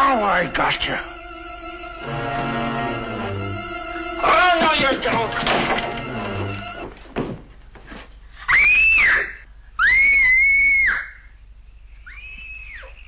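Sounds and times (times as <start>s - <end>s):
girl screaming in fright: 8.5s - 11.3s, 12.0s - 13.0s.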